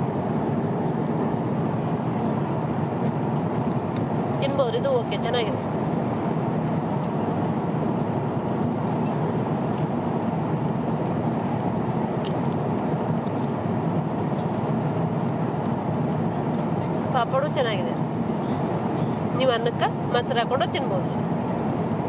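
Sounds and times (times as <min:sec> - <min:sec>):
jet cabin engine rush: 0:00.0 - 0:22.0.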